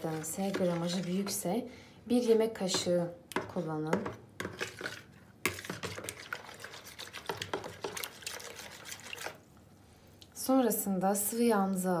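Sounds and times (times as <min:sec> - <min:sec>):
liquid sloshing: 0:00.0 - 0:01.4, 0:04.5 - 0:09.5
spoon scraping plastic bowl: 0:00.0 - 0:01.5, 0:02.2 - 0:09.4.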